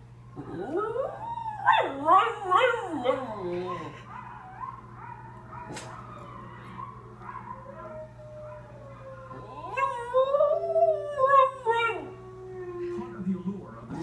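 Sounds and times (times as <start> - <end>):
dog howling: 0.4 - 14.0
wolves howling on television: 0.4 - 14.0.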